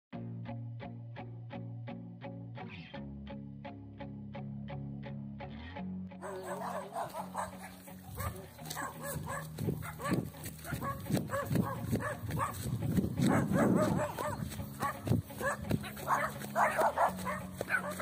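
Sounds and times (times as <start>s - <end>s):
guitar music: 0.1s - 18.0s
dog barking: 6.2s - 18.0s.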